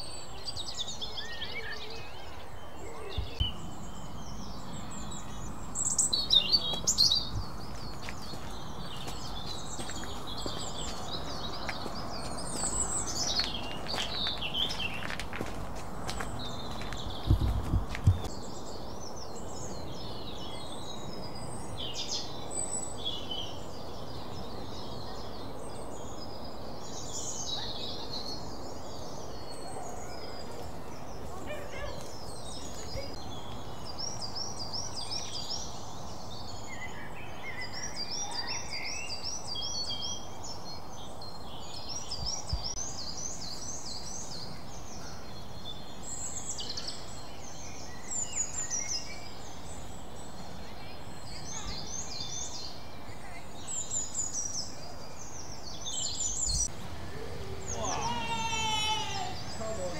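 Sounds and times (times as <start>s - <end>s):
birds singing and calling: 0.0s - 59.9s
steady low background noise: 32.1s - 59.9s.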